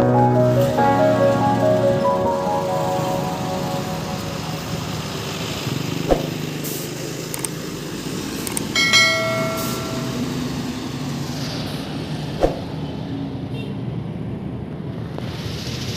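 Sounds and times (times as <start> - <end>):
bus engine and street traffic: 0.0 - 15.9
bright ringing chime: 8.8 - 10.8.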